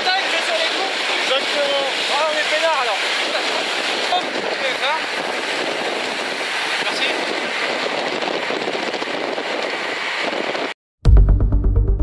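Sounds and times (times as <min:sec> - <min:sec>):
rushing wind and road noise: 0:00.0 - 0:10.8
music with a steady beat: 0:11.1 - 0:12.0.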